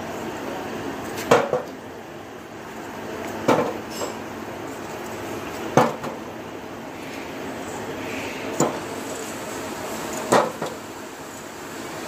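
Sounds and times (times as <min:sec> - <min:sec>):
steady background noise: 0:00.0 - 0:12.0.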